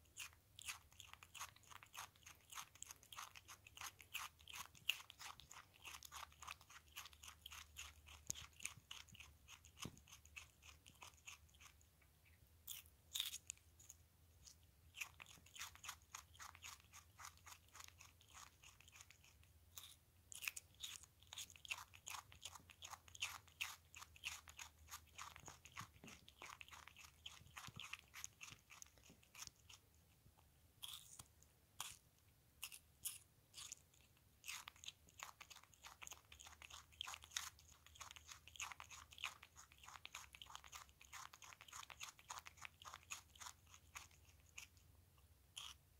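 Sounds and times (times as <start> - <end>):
animal crunching cucumber: 0.0 - 45.9.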